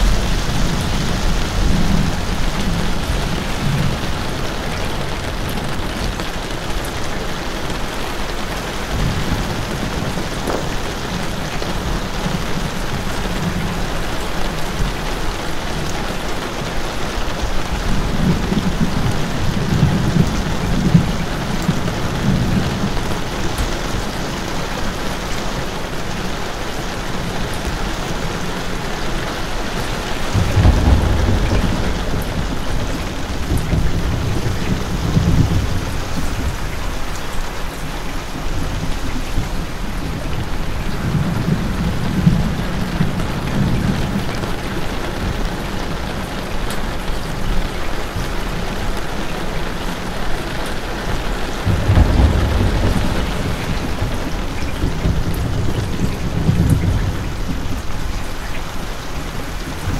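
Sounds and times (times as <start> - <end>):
low rumbles: 0.0 - 7.2, 29.8 - 37.8, 51.4 - 58.2
steady rain falling: 0.0 - 59.9.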